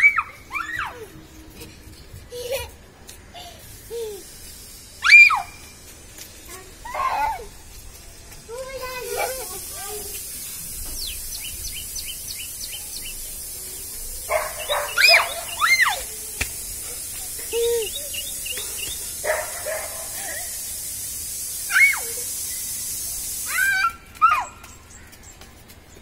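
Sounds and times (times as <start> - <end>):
bird chirps: 10.1 - 16.2, 16.9 - 19.3.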